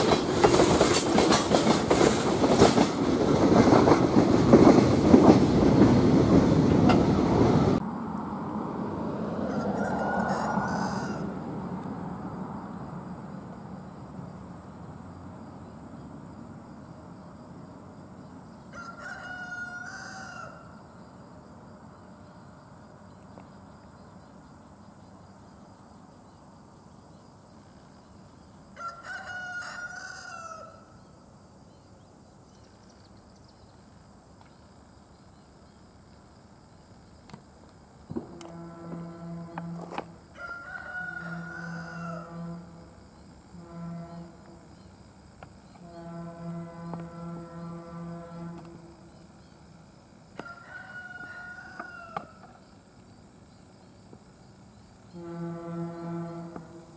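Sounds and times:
rooster crowing: 9.3 - 11.5, 18.7 - 20.9, 28.7 - 31.0, 40.2 - 42.9, 50.4 - 52.6.

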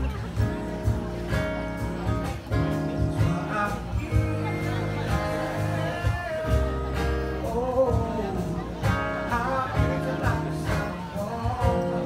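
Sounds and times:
strummed acoustic guitar: 0.0 - 12.0
person singing: 3.0 - 12.0.

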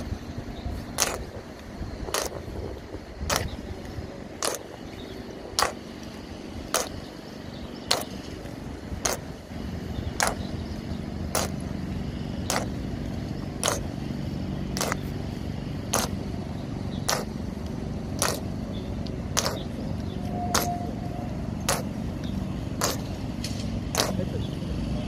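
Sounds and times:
low background rumble: 0.0 - 25.0
boot heels striking stone: 6.7 - 7.0, 10.2 - 10.5, 13.6 - 13.9, 16.0 - 16.2, 17.0 - 17.4, 18.2 - 18.5, 19.3 - 19.7, 22.8 - 23.1, 24.0 - 24.2.

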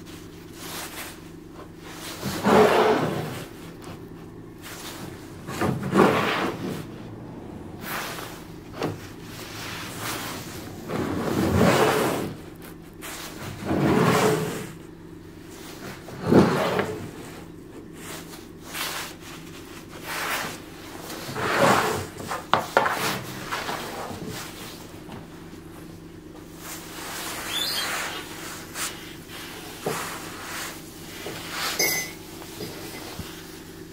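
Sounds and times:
wooden strips scraping on workbench: 0.8 - 4.0, 4.6 - 7.0, 7.8 - 14.8, 15.7 - 19.3, 19.9 - 25.3, 26.4 - 31.8.

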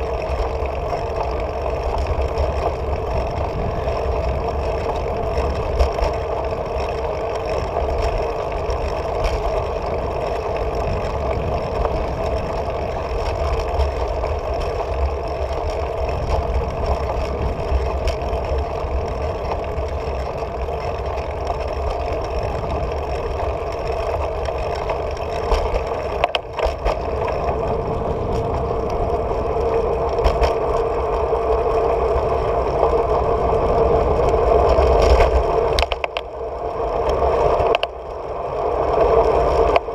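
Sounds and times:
bicycle tyre rumble on asphalt: 0.0 - 39.9
wind rush: 2.8 - 5.7, 25.4 - 37.6.

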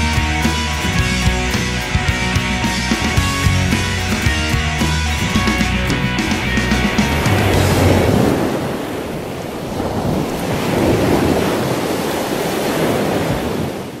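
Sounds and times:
waves breaking on beach: 5.2 - 14.0.

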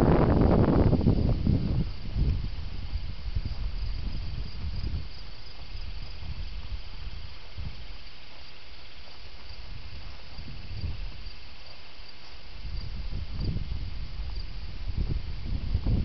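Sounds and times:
wind rumble on microphone: 0.0 - 8.3, 9.3 - 11.7, 12.4 - 16.0
crickets chirping: 0.0 - 16.0.

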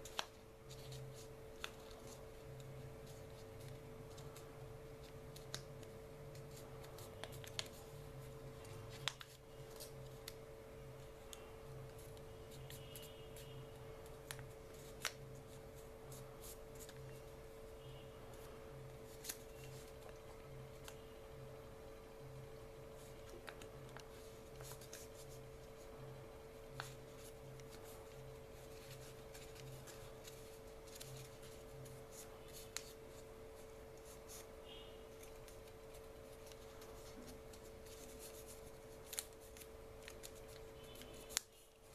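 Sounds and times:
paper rustling: 0.0 - 10.4, 11.0 - 17.4, 18.4 - 21.0, 22.9 - 41.9
faint steady hum: 0.0 - 41.9
crisp paper creasing ticks: 5.0 - 7.9, 8.6 - 10.4, 34.0 - 41.6.

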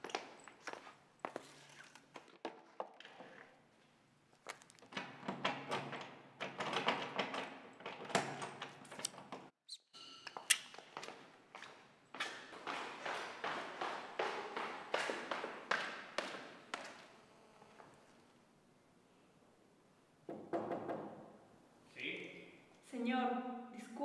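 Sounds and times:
footsteps: 10.4 - 18.4.

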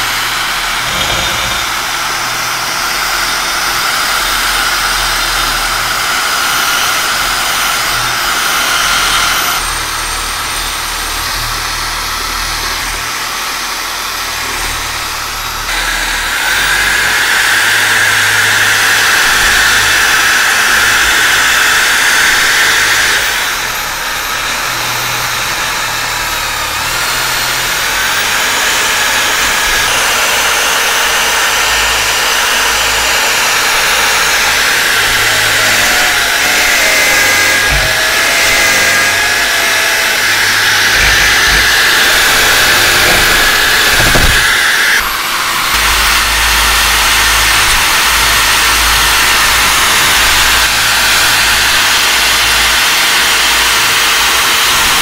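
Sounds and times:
wire brush scrubbing metal: 0.0 - 2.5, 28.3 - 51.0
power tool motor whine: 0.0 - 55.0.

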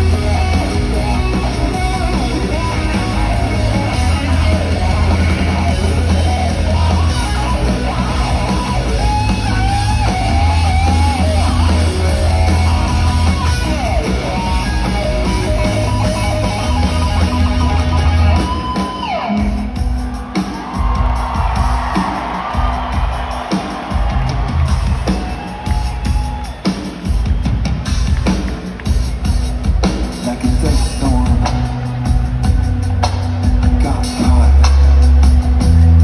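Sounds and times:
bass guitar: 0.0 - 20.0, 27.3 - 36.0
electric guitars: 0.0 - 26.6
drums: 0.0 - 36.0.

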